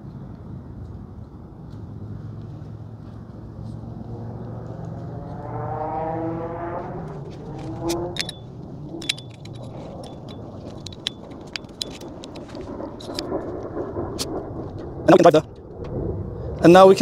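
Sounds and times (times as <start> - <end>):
passing vehicle hum: 0.0 - 17.0
sharp clicks with ringing note: 7.6 - 12.4
metal parts clinking: 7.6 - 13.2.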